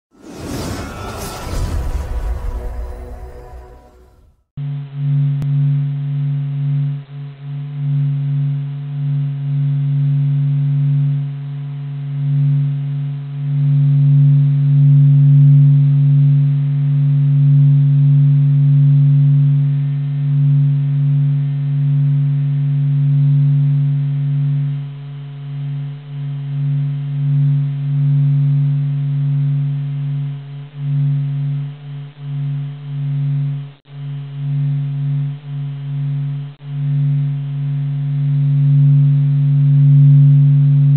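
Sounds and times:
low humming drone: 0:00.2 - 0:04.4.

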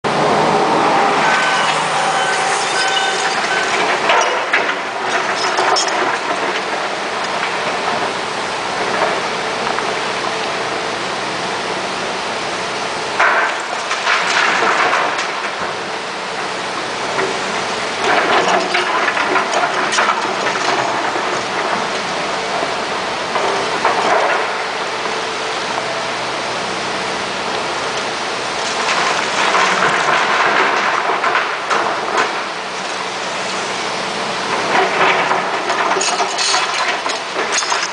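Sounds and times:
heavy machinery running: 0:00.0 - 0:37.9
rocks clattering into truck: 0:28.7 - 0:33.1, 0:34.4 - 0:37.9.

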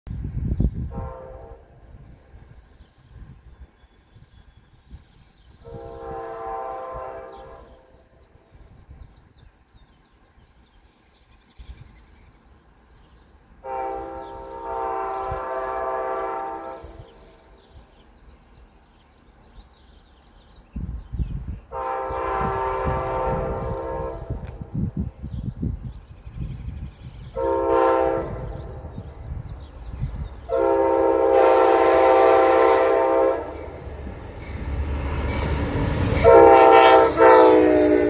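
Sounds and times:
train rumbling: 0:00.1 - 0:38.0
train air horn: 0:00.9 - 0:02.1, 0:05.6 - 0:08.2, 0:13.6 - 0:17.5, 0:21.7 - 0:24.7, 0:27.3 - 0:29.1, 0:30.5 - 0:38.0.

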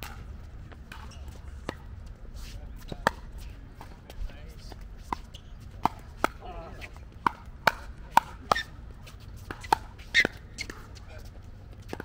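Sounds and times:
paddles hitting plastic ball: 0:07.2 - 0:08.7.

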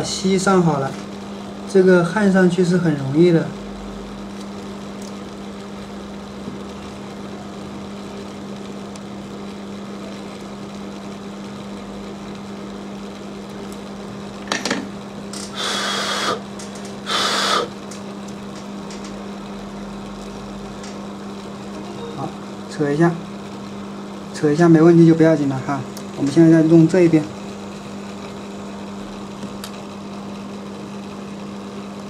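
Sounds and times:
low electrical hum: 0:00.0 - 0:32.0
short hissing bursts: 0:15.5 - 0:16.4, 0:17.0 - 0:17.8.

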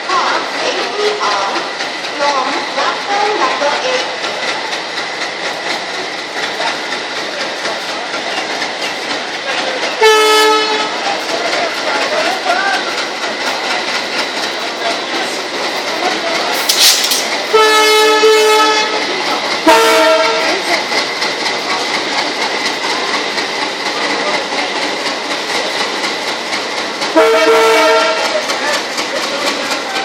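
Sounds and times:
train rolling past: 0:00.0 - 0:30.0
locomotive horn blasts: 0:10.0 - 0:11.0, 0:17.5 - 0:19.0, 0:19.7 - 0:20.5, 0:27.2 - 0:28.3
brief hiss: 0:16.5 - 0:17.3.

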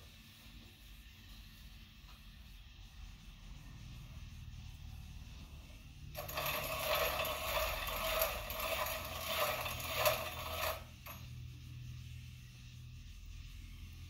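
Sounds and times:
metal rasping grind: 0:06.2 - 0:11.3.

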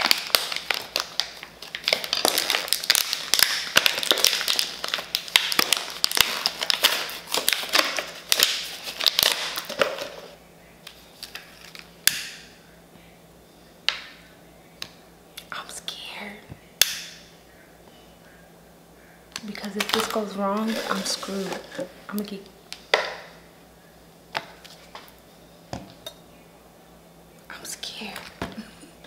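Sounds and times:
plastic packaging crinkling: 0:00.0 - 0:12.0, 0:19.4 - 0:23.4.

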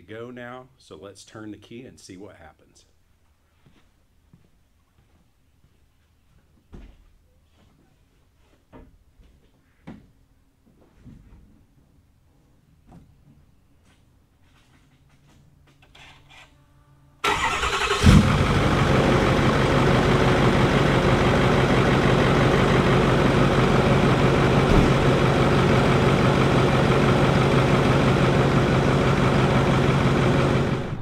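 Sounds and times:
diesel engine cranking and idling: 0:17.2 - 0:31.0.

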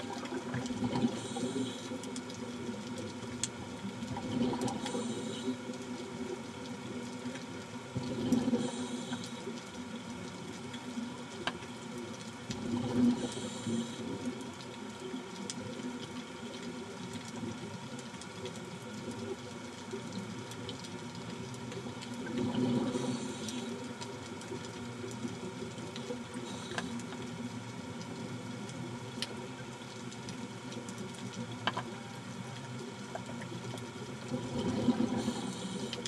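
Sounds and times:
steady hum: 0:00.0 - 0:36.0
diver exhaling bubbles underwater: 0:04.1 - 0:05.6, 0:08.0 - 0:09.4, 0:22.2 - 0:23.8, 0:34.3 - 0:36.0.

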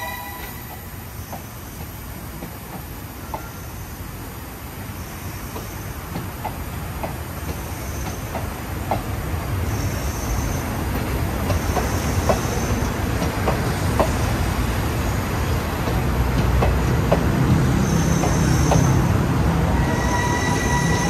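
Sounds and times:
train rumbling on rails: 0:00.0 - 0:21.0
wheels clicking over rail joints: 0:10.9 - 0:19.2
high wheel squeals: 0:19.7 - 0:21.0.

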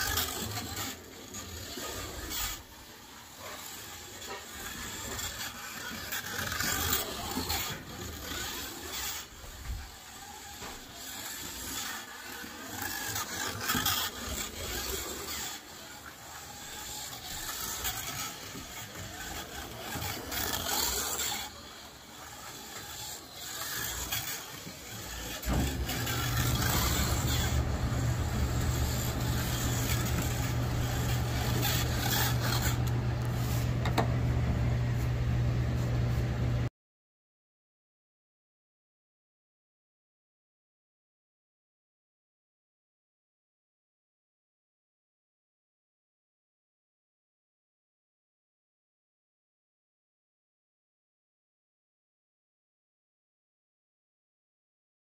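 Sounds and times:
slot car motor whine: 0:00.0 - 0:35.7
steady low hum: 0:25.4 - 0:36.7.

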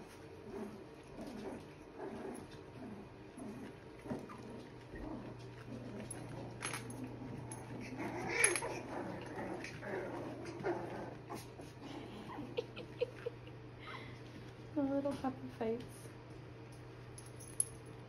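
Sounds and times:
puppies whimpering and squeaking: 0:07.8 - 0:08.9
puppy crying: 0:07.8 - 0:08.9.

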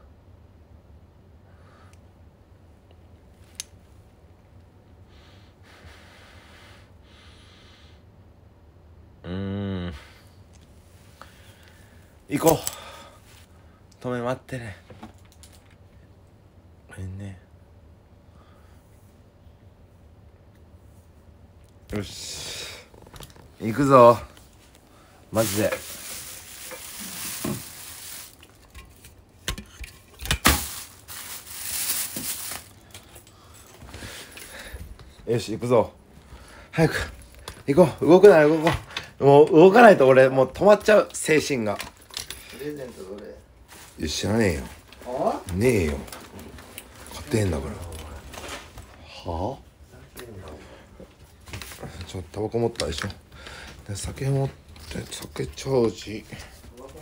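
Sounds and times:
rustling handling noise: 0:22.9 - 0:35.5, 0:40.6 - 0:49.0.

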